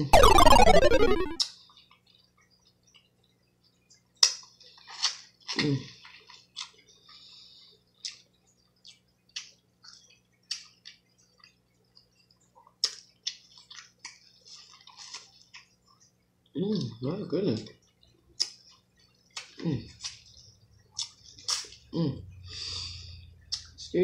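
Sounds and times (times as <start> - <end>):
wet chewing and smacking: 4.2 - 7.1, 8.0 - 16.1, 17.8 - 21.8.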